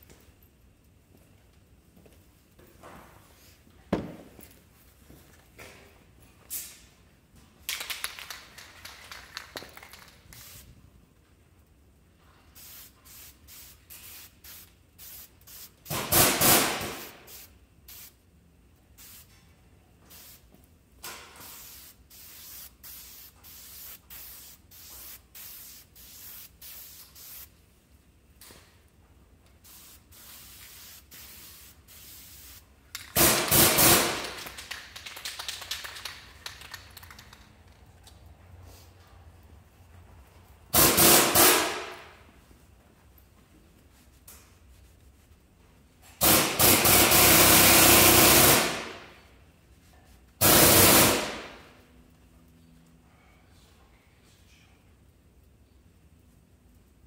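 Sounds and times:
spray paint can hissing: 0:09.1 - 0:10.8, 0:12.6 - 0:18.2, 0:19.0 - 0:19.4, 0:20.1 - 0:20.5, 0:21.4 - 0:27.6, 0:29.6 - 0:36.6, 0:40.7 - 0:42.1, 0:46.2 - 0:48.9, 0:50.4 - 0:51.5.

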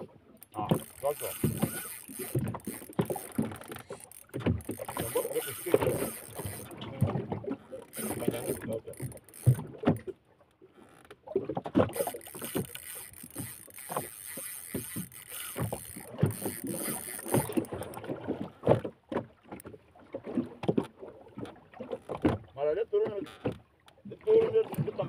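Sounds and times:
fishing rod knocks and creaks: 0:00.0 - 0:24.9
fishing reel whirring: 0:00.4 - 0:06.8, 0:07.6 - 0:09.7, 0:11.9 - 0:18.0.

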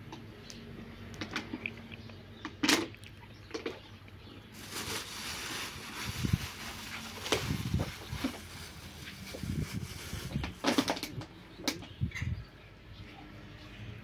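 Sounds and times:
plastic bag crinkling: 0:04.6 - 0:11.1.

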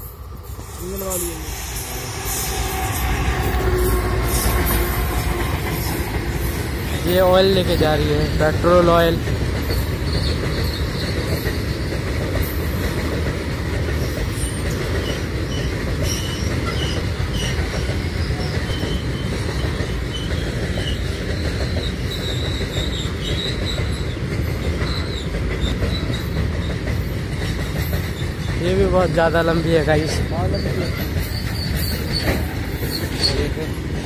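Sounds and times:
high wheel squeals: 0:00.0 - 0:12.1, 0:14.0 - 0:27.2, 0:27.8 - 0:33.8
freight train rumbling on rails: 0:00.0 - 0:34.0.

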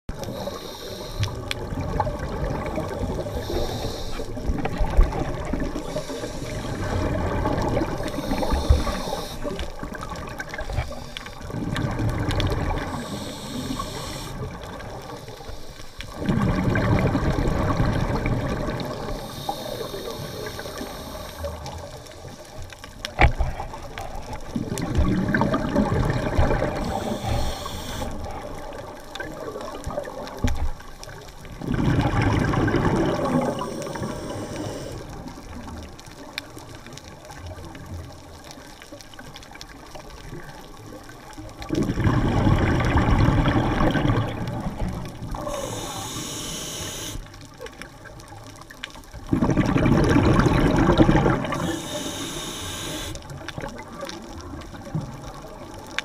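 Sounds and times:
regulator inhale hiss: 0:00.1 - 0:01.6, 0:03.2 - 0:04.5, 0:05.8 - 0:07.2, 0:07.8 - 0:09.8, 0:10.6 - 0:11.5, 0:12.7 - 0:16.2, 0:18.8 - 0:22.6, 0:26.7 - 0:28.8, 0:33.2 - 0:35.3, 0:45.3 - 0:47.4, 0:51.5 - 0:53.3
exhaust bubbling underwater: 0:01.3 - 0:15.2, 0:16.1 - 0:21.9, 0:23.1 - 0:36.0, 0:40.2 - 0:46.2, 0:49.2 - 0:56.0.

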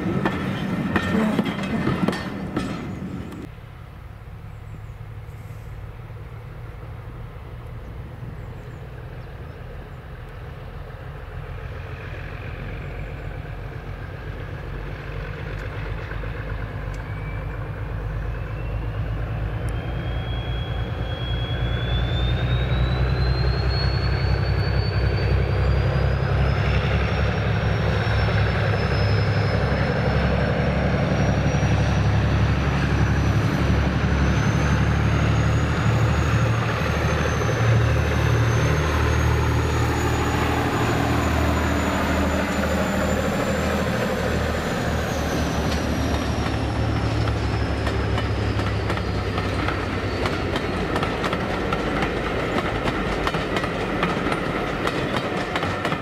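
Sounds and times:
diesel locomotive engine running: 0:00.0 - 0:56.0.

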